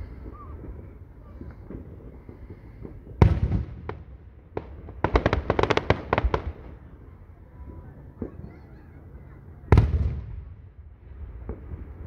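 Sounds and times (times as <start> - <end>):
crackling firework reports: 0.0 - 12.0
firework bang with rumbling tail: 0.2 - 5.3, 9.7 - 10.6
sharp firework pops: 1.3 - 6.7.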